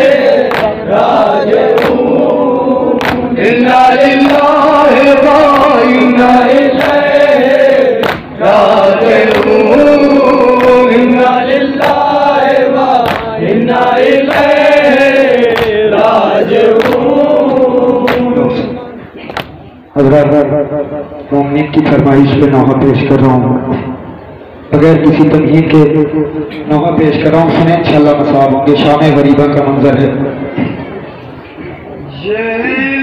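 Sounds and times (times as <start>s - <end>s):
men chanting together: 0.0s - 19.0s.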